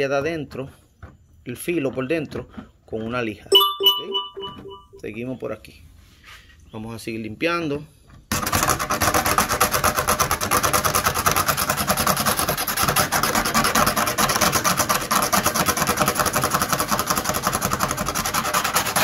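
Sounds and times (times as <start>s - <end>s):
razor blade scraping plastic: 8.3s - 19.0s.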